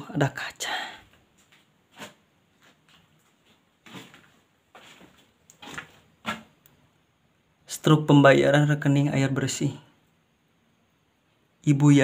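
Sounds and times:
faint knocks and scuffs: 1.2s - 6.6s.

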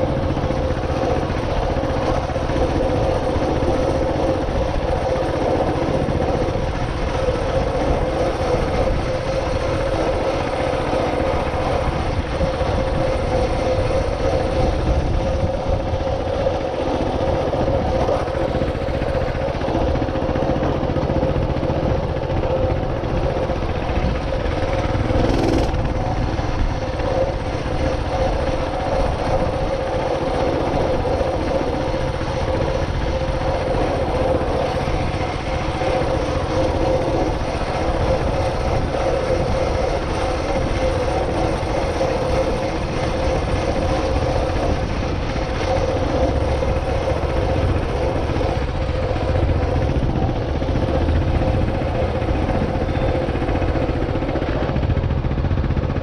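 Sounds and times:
vehicle motor running: 0.0s - 56.0s
wind rushing on camera: 0.0s - 56.0s.

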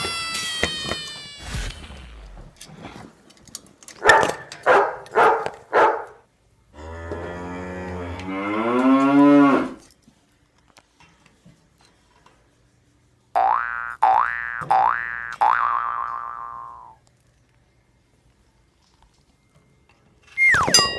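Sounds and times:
dog barks: 4.0s - 6.2s
cow mooing: 6.8s - 9.8s.

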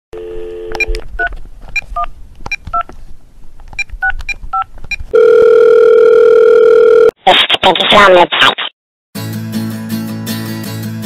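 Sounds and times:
loud steady telephone tone: 0.2s - 0.9s, 5.1s - 7.1s
telephone dial tone: 5.1s - 7.1s.

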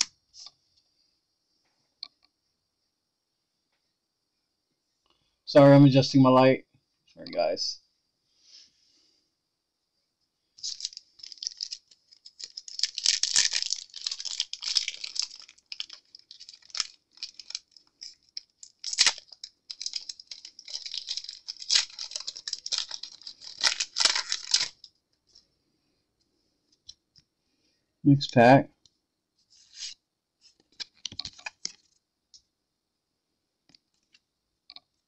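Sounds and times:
crinkly rustling: 10.6s - 25.6s.

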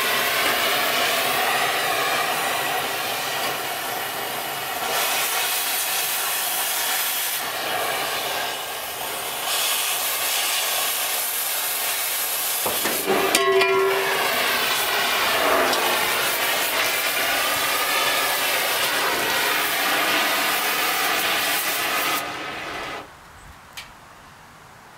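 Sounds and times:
cutting torch hissing: 0.0s - 23.1s
metallic clatter with ringing: 12.7s - 14.8s.

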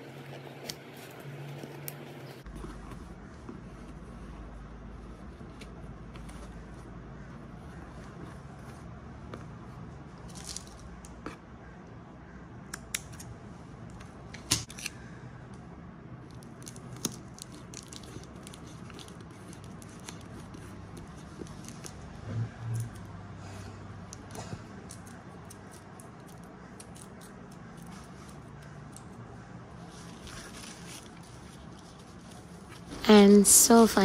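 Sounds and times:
string rustling on cardboard: 0.0s - 11.4s, 16.6s - 22.5s, 29.7s - 33.4s.

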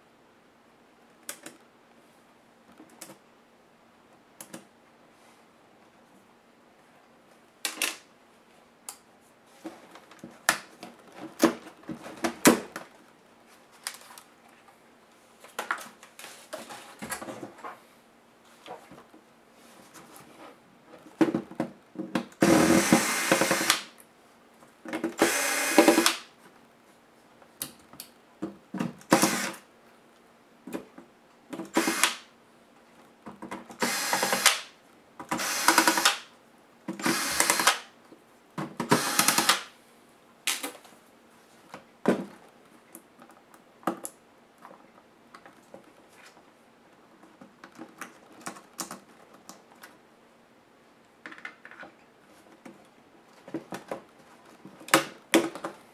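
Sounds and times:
electric screwdriver whirring: 22.4s - 23.9s, 25.2s - 26.2s, 29.2s - 29.6s, 31.7s - 32.2s, 33.8s - 34.6s, 35.4s - 36.2s, 37.0s - 37.8s, 38.9s - 39.7s.

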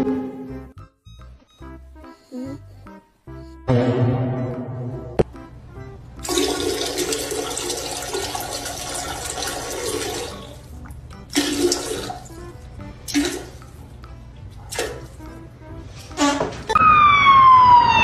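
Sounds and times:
toilet flushing: 6.2s - 10.7s, 11.3s - 12.4s, 13.1s - 13.7s.

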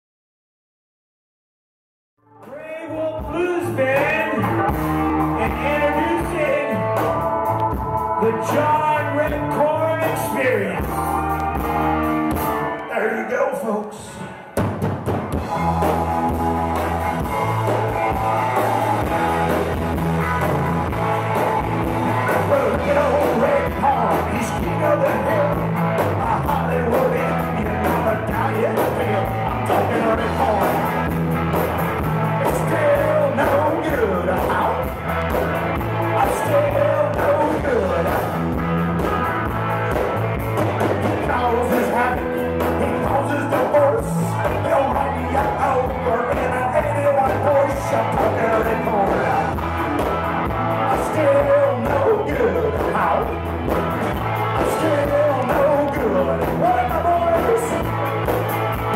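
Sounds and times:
blues rock band playing: 2.2s - 58.9s
harmonica wailing: 15.4s - 25.5s.

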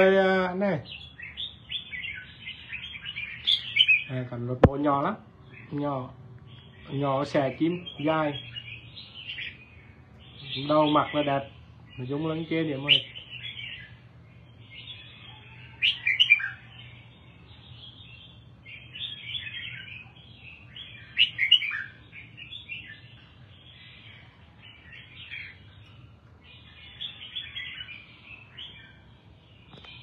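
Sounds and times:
bird warbling and chattering: 0.8s - 4.2s, 17.8s - 28.8s.

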